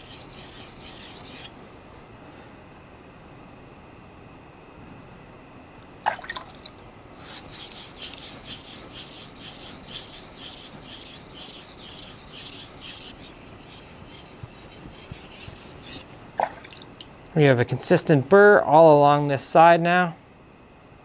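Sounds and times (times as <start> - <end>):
knife rasping on whetstone: 0.0 - 1.5, 7.2 - 16.1.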